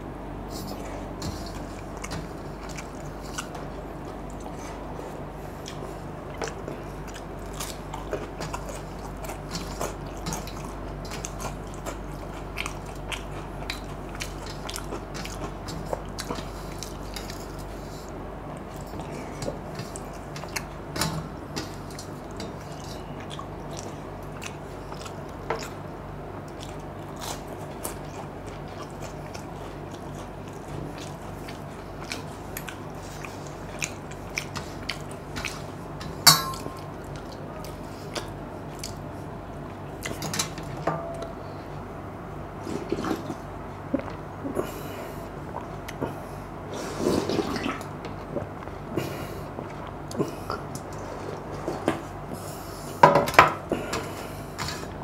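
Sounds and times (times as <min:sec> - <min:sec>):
steady low hum: 0:00.0 - 0:55.0
mouth chewing and smacking: 0:00.5 - 0:20.8, 0:21.4 - 0:40.4.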